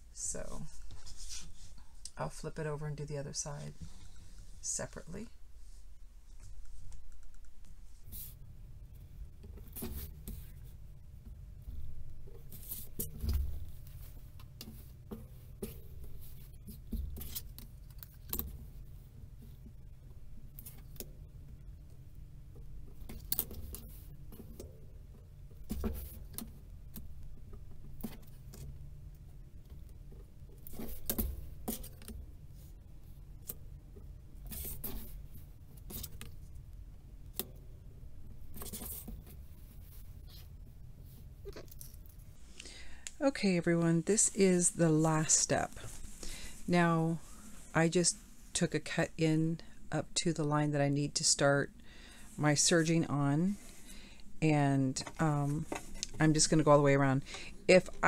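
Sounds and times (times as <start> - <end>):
low steady hum: 0.0 - 58.0
fabric rustling: 0.4 - 2.0, 43.7 - 48.6.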